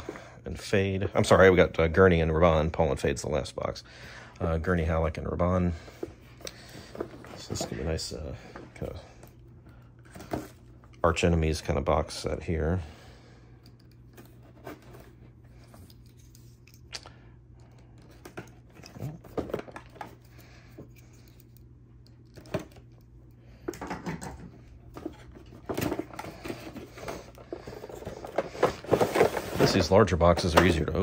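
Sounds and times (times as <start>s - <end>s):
cardboard scraping and rustling: 14.2s - 15.3s, 24.9s - 31.0s.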